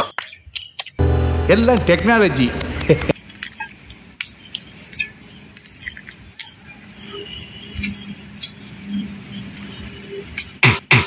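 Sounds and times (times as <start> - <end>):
crickets trilling: 3.1 - 10.9.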